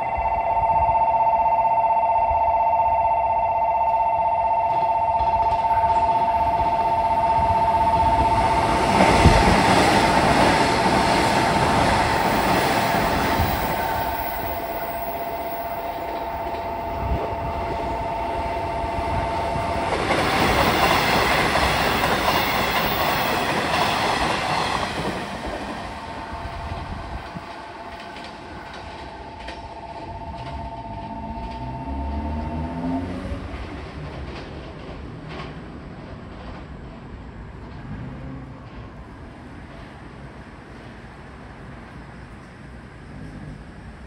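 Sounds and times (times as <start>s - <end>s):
two-tone level-crossing bell: 0.0s - 9.4s, 12.4s - 24.8s, 25.6s - 33.1s
train wheels clattering over rails: 7.8s - 30.9s, 33.3s - 41.0s.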